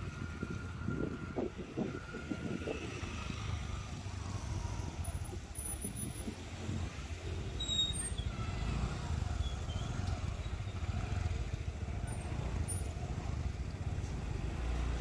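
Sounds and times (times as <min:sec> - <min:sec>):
wind rumble on microphone: 0:00.0 - 0:07.2
motorcycle engine and road noise: 0:00.0 - 0:15.0.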